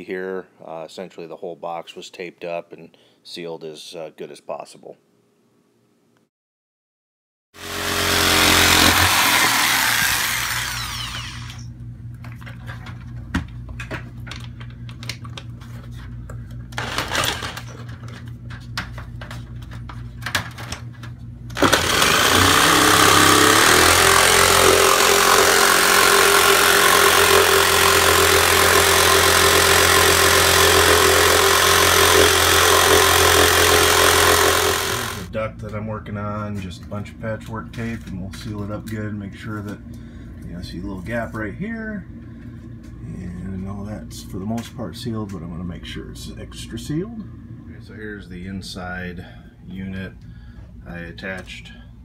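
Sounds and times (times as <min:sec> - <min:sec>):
jigsaw cutting: 0:07.6 - 0:11.7, 0:16.8 - 0:17.6, 0:21.5 - 0:35.3.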